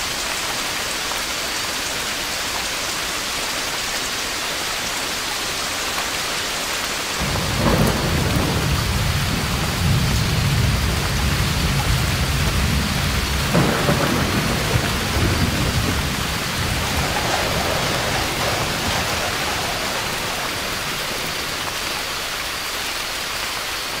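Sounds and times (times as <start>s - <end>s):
rain hissing: 0.0s - 24.0s
thunder rumbling: 7.2s - 23.2s.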